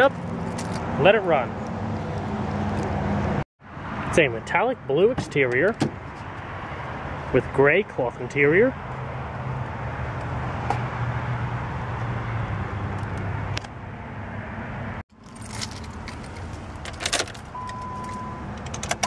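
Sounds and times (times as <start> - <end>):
car keys jangling and clicking: 15.2 - 19.0.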